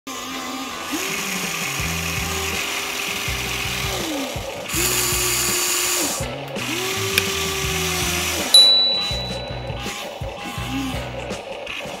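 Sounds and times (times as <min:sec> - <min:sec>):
electric motors whining: 0:00.1 - 0:08.5.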